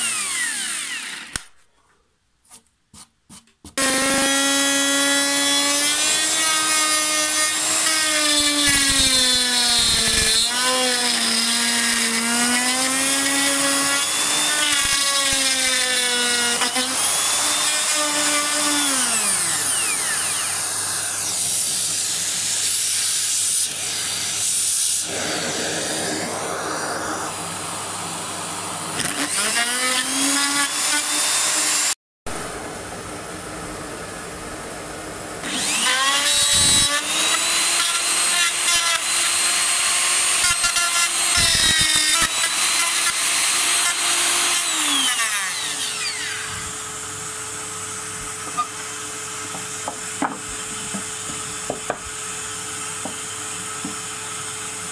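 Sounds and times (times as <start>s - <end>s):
router cutting wood: 0.0s - 1.5s, 3.8s - 32.0s, 35.4s - 54.9s.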